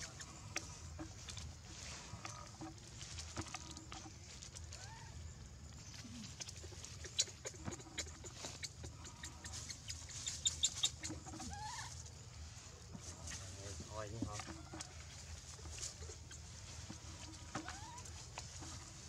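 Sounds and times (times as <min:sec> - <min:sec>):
dry leaves crackling: 0:01.6 - 0:05.0, 0:09.3 - 0:19.0
baby monkey squeaky cries: 0:07.0 - 0:12.0.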